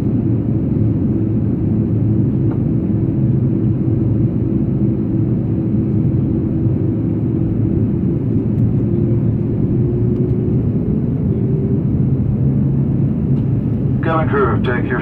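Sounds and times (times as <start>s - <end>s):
airflow rushing in cabin: 0.0s - 15.0s
jet engines droning: 0.0s - 15.0s.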